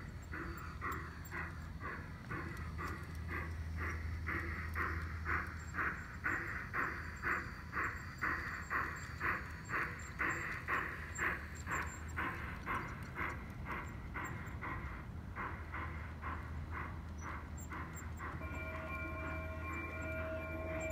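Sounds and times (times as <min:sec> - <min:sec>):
model steam locomotive chuffing: 0:00.0 - 0:20.9
low steady hum: 0:10.4 - 0:20.9.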